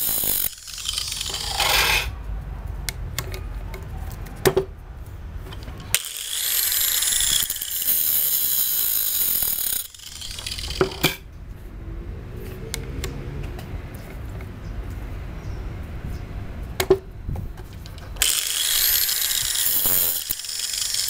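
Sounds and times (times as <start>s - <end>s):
angle grinder grinding metal: 0.0s - 2.2s, 5.9s - 11.2s, 18.2s - 21.0s.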